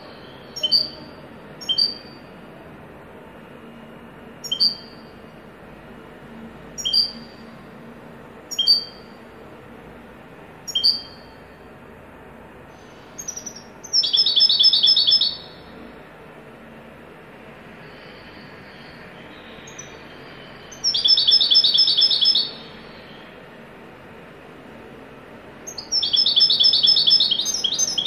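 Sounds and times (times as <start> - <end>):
bird trill: 0.0 - 2.3, 4.4 - 5.2, 6.8 - 7.5, 8.5 - 9.2, 10.7 - 11.4, 12.9 - 15.7, 18.6 - 23.4, 25.7 - 28.0
goldfinch calling: 4.4 - 5.0, 8.5 - 9.0, 10.7 - 11.2, 13.2 - 15.6, 20.7 - 22.6, 25.7 - 28.0.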